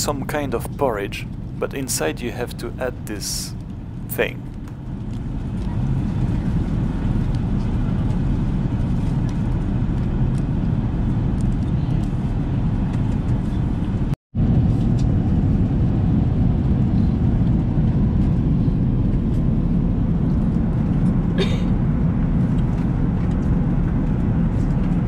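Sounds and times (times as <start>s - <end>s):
airplane cabin low rumble: 0.0s - 25.0s.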